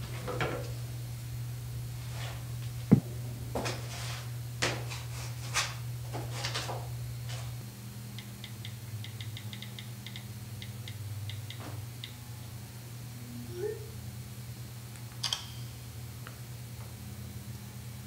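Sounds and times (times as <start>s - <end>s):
low hum: 0.0s - 5.1s.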